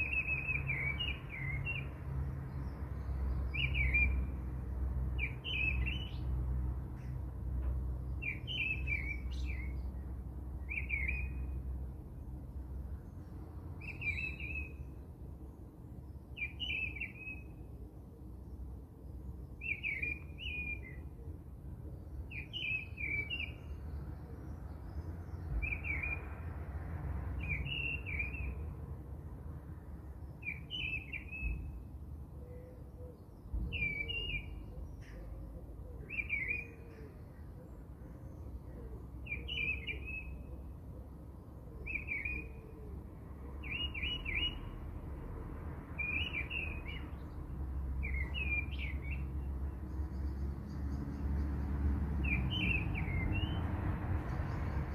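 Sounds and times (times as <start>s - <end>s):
bird chirping: 0.0s - 4.4s, 5.2s - 6.4s, 8.1s - 11.6s, 13.0s - 15.0s, 16.0s - 17.7s, 19.2s - 21.2s, 21.9s - 26.3s, 27.4s - 28.7s, 30.2s - 31.8s, 32.5s - 40.7s, 41.4s - 42.8s, 43.6s - 44.8s, 46.0s - 51.4s, 52.2s - 53.6s.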